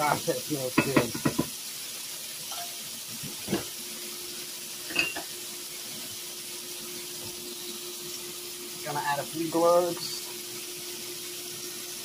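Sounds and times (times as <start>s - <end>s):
meat sizzling in oil: 0.0s - 12.0s.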